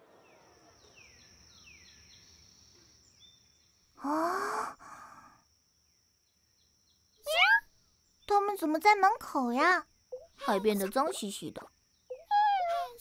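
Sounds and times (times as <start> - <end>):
bird chirps: 0.2 - 3.9
person gasping: 4.0 - 5.4
soft breath: 4.0 - 5.4.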